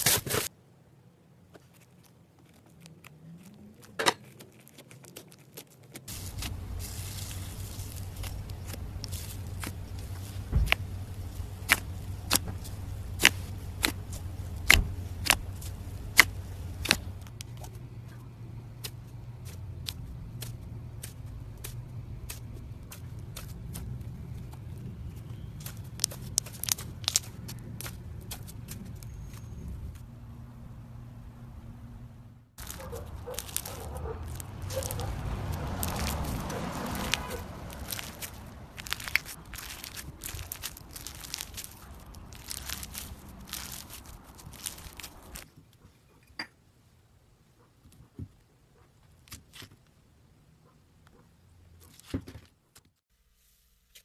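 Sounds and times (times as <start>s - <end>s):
slime popping and crackling: 2.4s - 17.8s, 25.4s - 29.5s, 32.6s - 45.5s
low background rumble: 6.1s - 46.2s.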